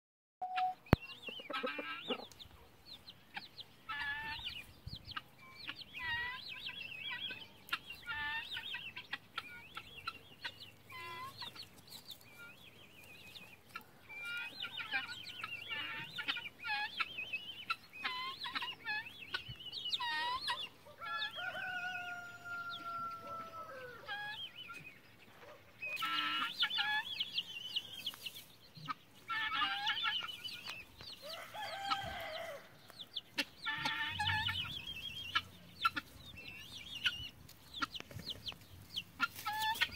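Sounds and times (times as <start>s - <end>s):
chickens clucking: 0.4s - 39.9s
rooster crowing: 21.1s - 24.1s, 31.2s - 32.8s.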